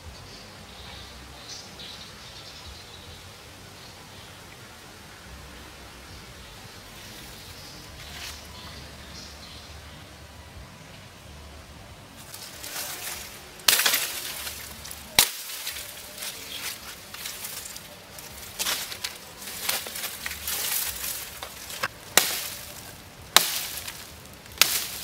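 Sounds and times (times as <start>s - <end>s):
blade chopping branches: 12.2s - 25.0s
leaves rustling and twigs snapping: 12.2s - 25.0s.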